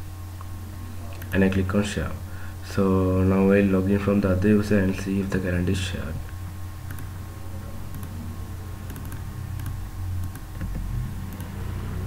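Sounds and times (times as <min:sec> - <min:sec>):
steady low hum: 0:00.0 - 0:12.0
computer keyboard keys clicking: 0:06.9 - 0:07.1, 0:07.9 - 0:08.2, 0:08.8 - 0:11.6.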